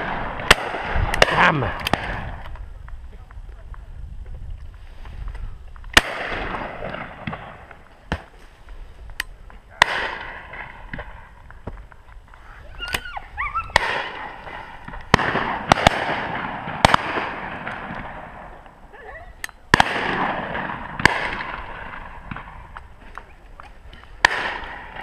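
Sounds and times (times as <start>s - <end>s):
shotgun shots with echo: 0.0s - 2.2s, 6.0s - 8.3s, 9.8s - 11.2s, 13.8s - 18.4s, 19.7s - 22.5s, 24.2s - 25.0s.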